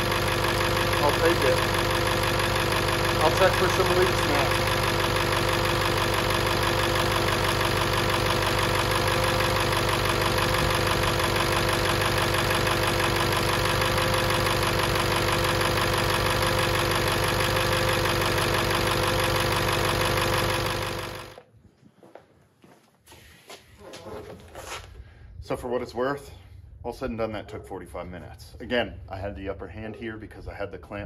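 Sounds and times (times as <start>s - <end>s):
diesel engine idling: 0.0s - 21.4s.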